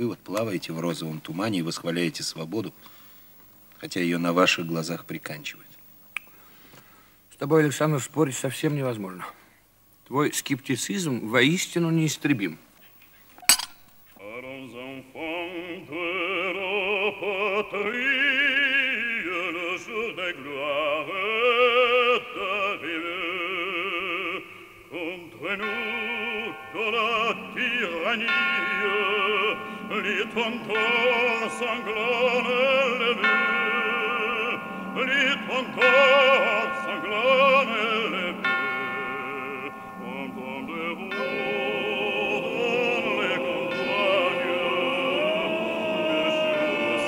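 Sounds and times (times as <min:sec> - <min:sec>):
operatic singing: 0:14.2 - 0:47.0
held instrumental chords: 0:25.5 - 0:47.0.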